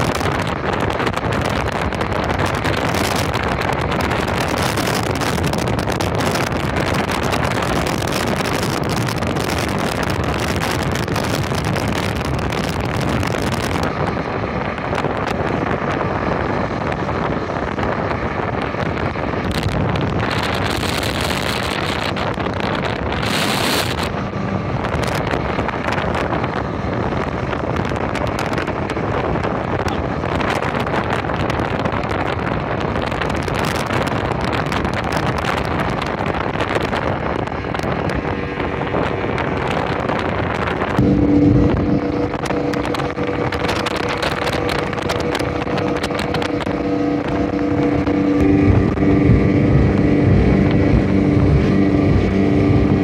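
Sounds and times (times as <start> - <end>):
outboard motor running: 0.0 - 53.0
water rushing past hull: 0.0 - 53.0
wind buffeting microphone: 0.0 - 53.0.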